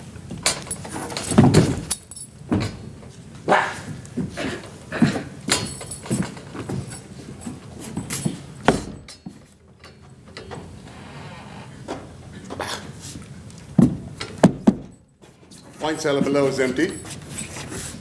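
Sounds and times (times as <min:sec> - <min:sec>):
light metallic jangle: 0:00.5 - 0:02.4, 0:05.5 - 0:09.2, 0:14.8 - 0:18.0.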